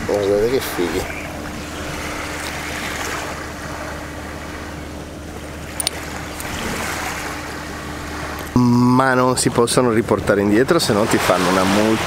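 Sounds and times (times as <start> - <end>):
small waves washing on beach: 0.0 - 8.7, 10.6 - 12.0
steady low hum: 0.0 - 12.0.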